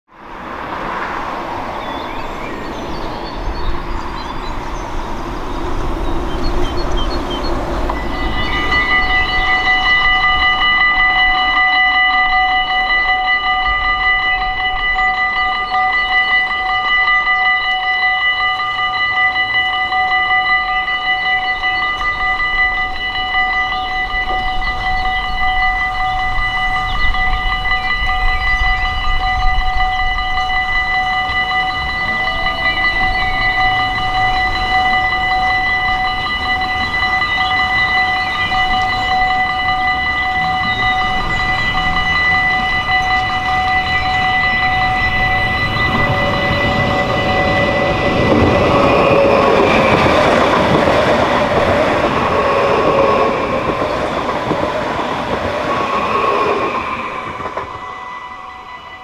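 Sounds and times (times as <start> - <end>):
approaching train rumble: 0.1 - 59.0
level crossing warning bell: 0.2 - 59.0.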